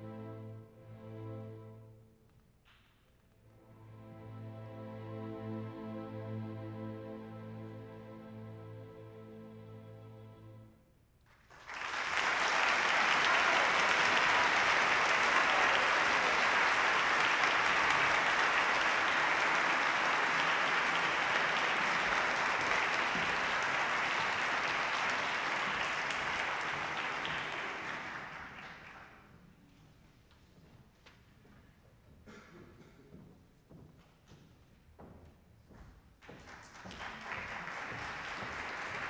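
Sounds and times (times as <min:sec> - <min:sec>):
audience applauding: 0:11.3 - 0:29.3, 0:36.3 - 0:39.0.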